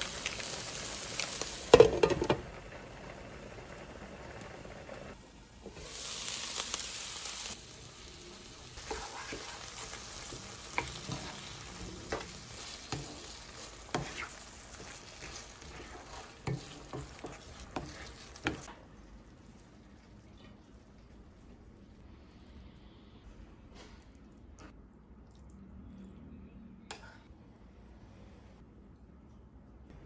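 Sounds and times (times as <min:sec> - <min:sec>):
vegetables sizzling in a frying pan: 0:00.0 - 0:19.8.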